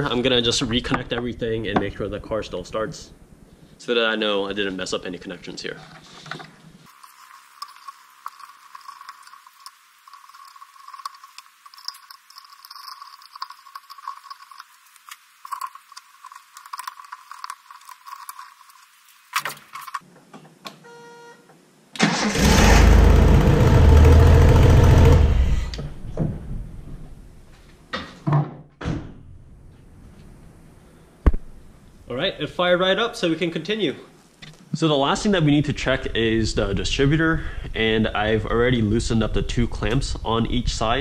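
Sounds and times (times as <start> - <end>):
car engine starting and running: 22.0 - 25.8.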